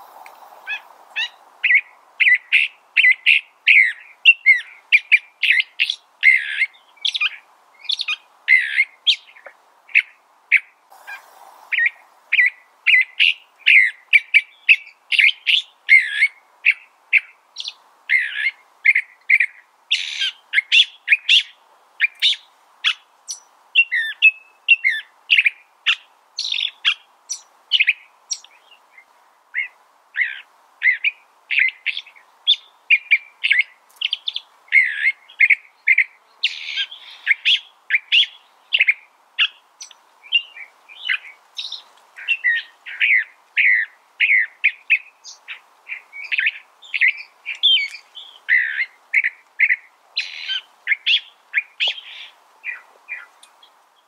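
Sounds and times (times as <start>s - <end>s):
bird singing: 0.0s - 16.8s, 29.6s - 53.7s.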